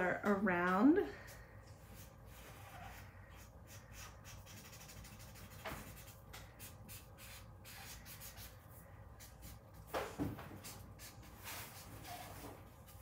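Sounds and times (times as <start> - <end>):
marker scratching on paper: 2.0 - 9.9, 10.5 - 13.0.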